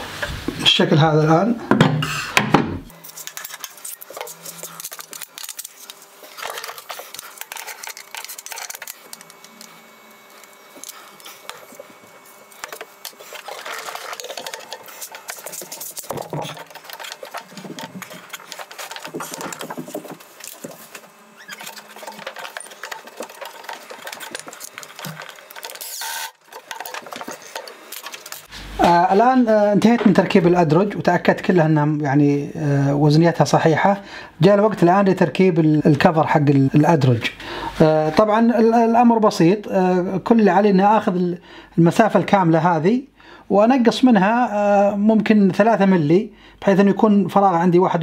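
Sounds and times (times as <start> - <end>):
cordless drill running: 2.9 - 28.5.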